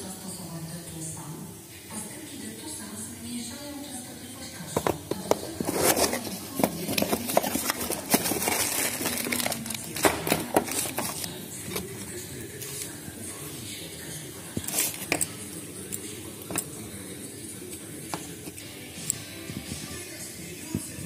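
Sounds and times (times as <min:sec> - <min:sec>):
cardboard scraping: 0:04.8 - 0:12.9, 0:14.6 - 0:15.2
plastic crinkling: 0:04.9 - 0:13.0.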